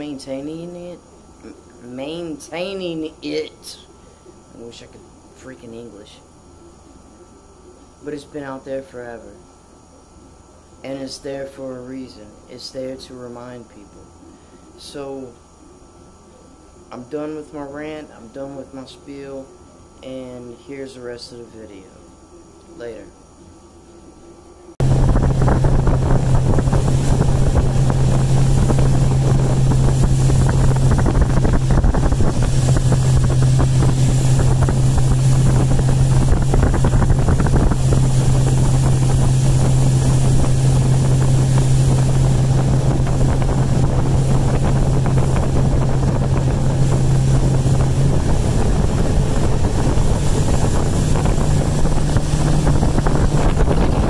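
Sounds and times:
boat motor running: 24.8s - 54.0s
wind buffeting microphone: 24.8s - 54.0s.

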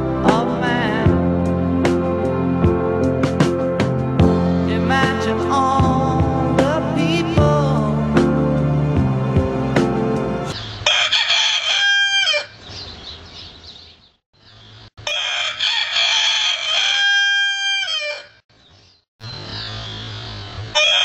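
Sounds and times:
music: 0.0s - 10.6s
rooster crowing: 10.8s - 12.6s, 15.0s - 18.4s, 20.7s - 21.0s.

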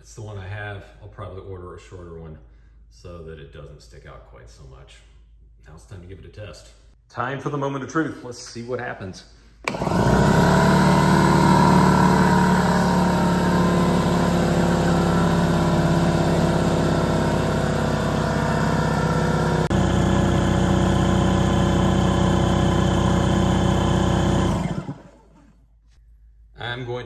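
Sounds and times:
air compressor running: 9.6s - 25.6s.

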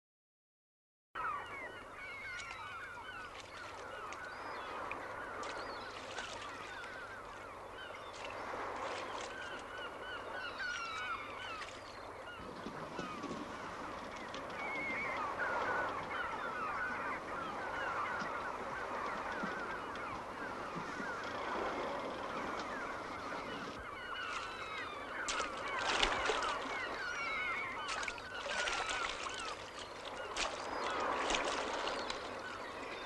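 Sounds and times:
birds honking: 23.0s - 33.0s.

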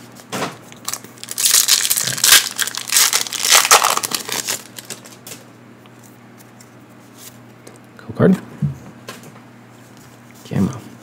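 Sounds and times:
foil wrapper crinkling: 0.8s - 5.3s.

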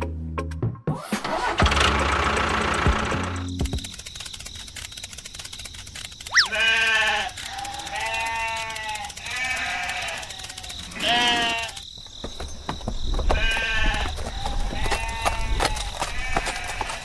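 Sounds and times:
sharp falling chirp: 6.2s - 6.7s
livestock bleating: 6.3s - 11.8s, 13.4s - 17.0s.

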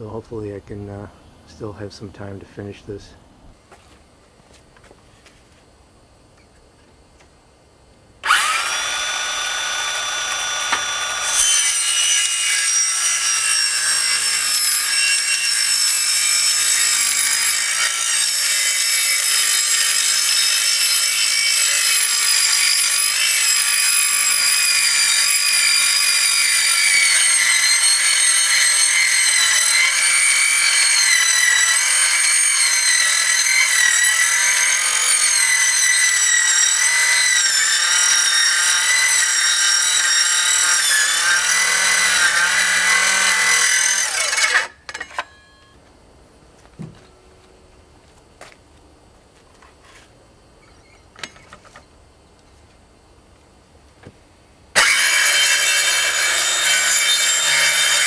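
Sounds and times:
circular saw cutting plastic panel: 8.2s - 45.2s, 54.8s - 58.0s.

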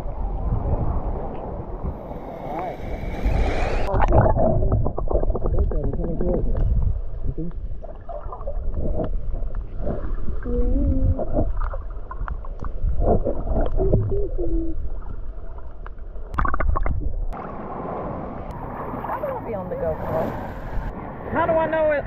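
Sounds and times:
muffled underwater water rumble: 0.0s - 21.0s
thin wash of water: 1.8s - 5.2s.

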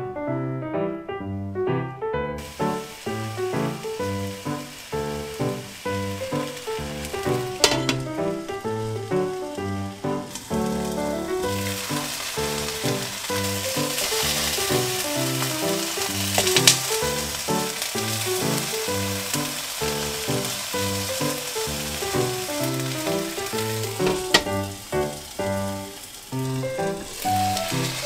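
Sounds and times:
onions sizzling in oil: 2.4s - 28.0s
light background music: 6.0s - 19.3s.

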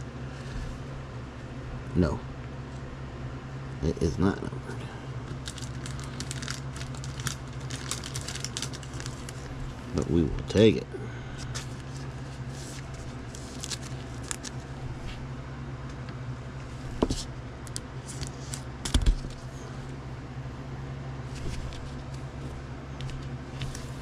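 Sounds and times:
steady low hum: 0.0s - 24.0s
card rustling in plastic holder: 5.3s - 9.6s, 11.4s - 14.7s.

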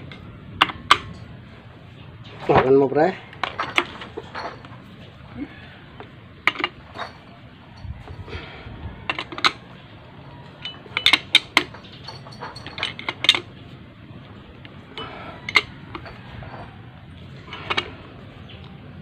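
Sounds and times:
wrench clinking on metal: 3.4s - 4.8s, 6.5s - 8.3s, 10.3s - 13.6s, 14.9s - 18.0s.

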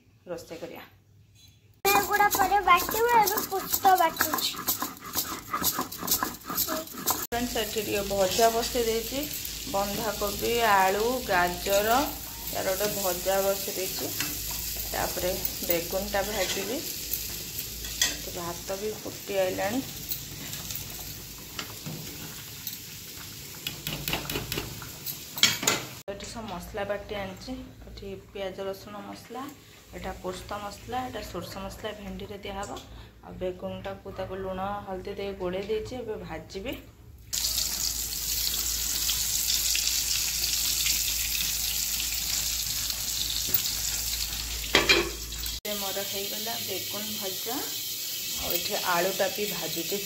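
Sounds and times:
rice boiling and bubbling: 1.9s - 25.1s, 37.3s - 44.7s
vegetables sizzling in hot oil: 1.9s - 26.0s, 37.3s - 50.0s.

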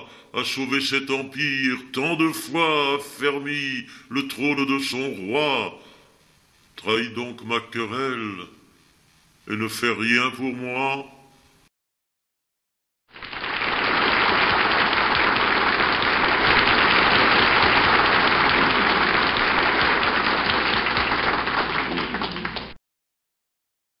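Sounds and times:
audience applauding: 13.2s - 22.8s.

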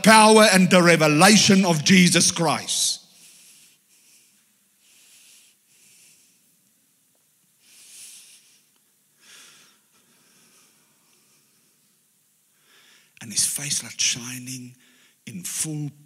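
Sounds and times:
man breathing: 3.0s - 6.6s, 7.6s - 11.9s, 12.5s - 13.2s.

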